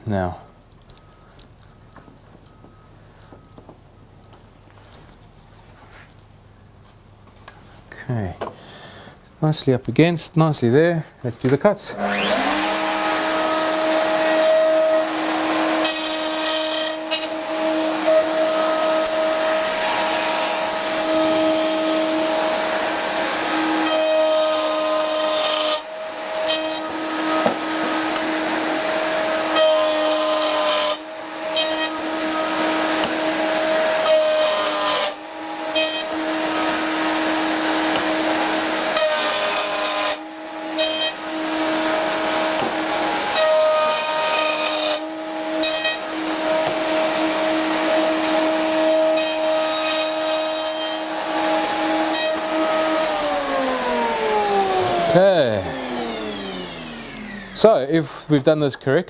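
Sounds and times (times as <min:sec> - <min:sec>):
dust extractor running: 0:11.9 - 0:57.9
circular saw whine: 0:11.9 - 0:58.0
saw cutting board rasping: 0:12.0 - 0:55.9.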